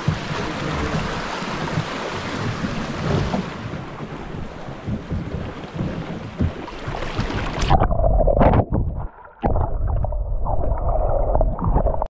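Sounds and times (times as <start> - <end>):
river water rushing: 0.0 - 7.8
wind buffeting microphone: 0.0 - 9.1.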